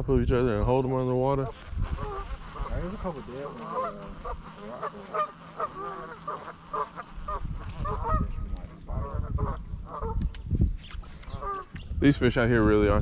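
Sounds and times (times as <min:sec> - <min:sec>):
geese honking: 0:01.4 - 0:10.3, 0:11.3 - 0:11.8.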